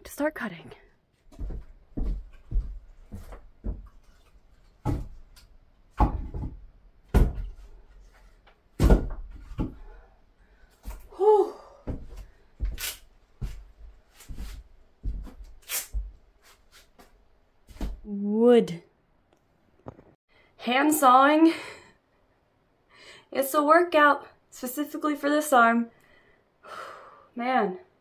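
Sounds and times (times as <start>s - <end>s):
footsteps on wooden floor: 1.2s - 5.3s, 11.9s - 12.8s, 13.4s - 16.2s
firewood knocking and thumping: 5.9s - 7.6s, 8.8s - 9.9s.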